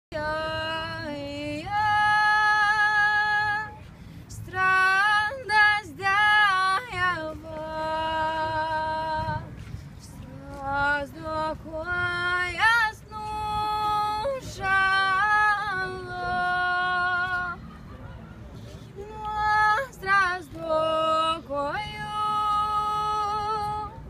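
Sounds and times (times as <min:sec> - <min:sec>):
woman singing unaccompanied: 0:00.1 - 0:17.6, 0:19.0 - 0:24.0.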